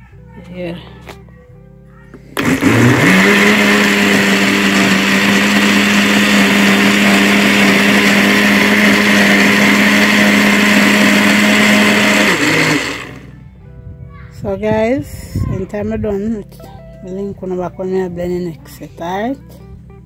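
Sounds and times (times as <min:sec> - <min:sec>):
blender motor running: 0:02.4 - 0:13.3.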